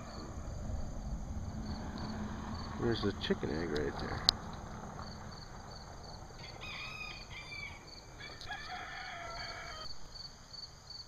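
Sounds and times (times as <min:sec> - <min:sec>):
crickets chirping: 0:00.0 - 0:11.0
rooster crowing: 0:06.3 - 0:10.0.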